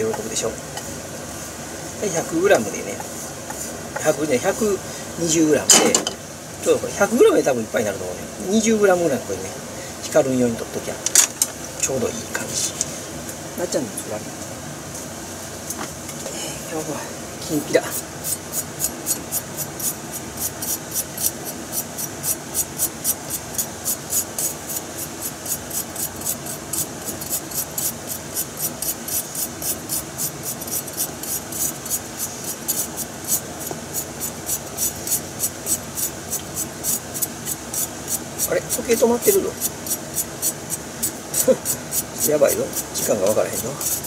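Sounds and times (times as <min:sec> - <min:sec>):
knife scraping root: 0:17.8 - 0:44.0.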